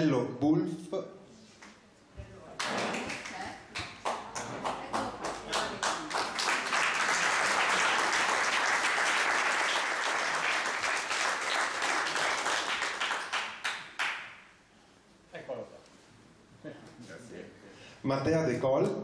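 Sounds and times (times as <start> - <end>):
audience applauding: 2.6 - 14.4.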